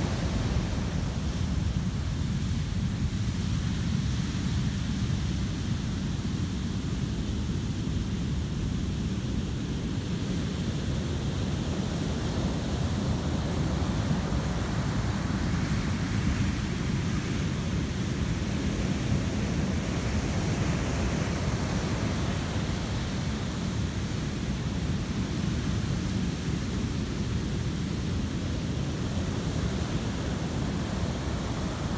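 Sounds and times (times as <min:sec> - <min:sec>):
ocean surf breaking on sand: 0:00.0 - 0:04.6, 0:09.9 - 0:31.9
whitewater hiss: 0:11.0 - 0:31.9.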